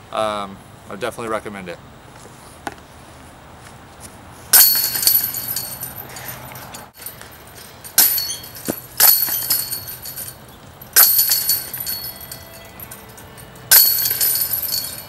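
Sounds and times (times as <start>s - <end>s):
discs striking basket chains: 4.5s - 15.0s.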